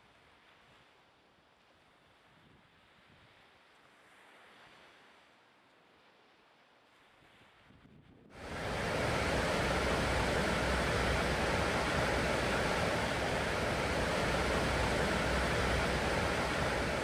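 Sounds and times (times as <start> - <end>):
steady rushing noise: 8.4 - 17.0.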